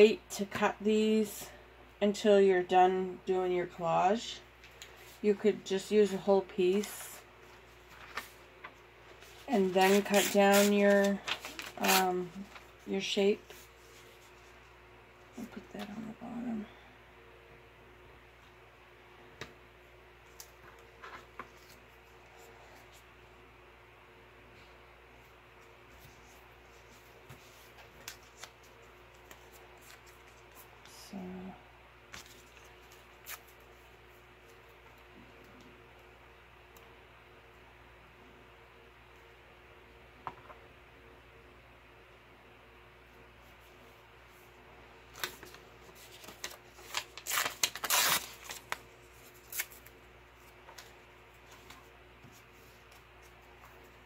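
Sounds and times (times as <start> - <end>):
paper rustling and crinkling: 6.6 - 14.7, 25.6 - 31.0, 32.1 - 34.6, 45.0 - 54.0.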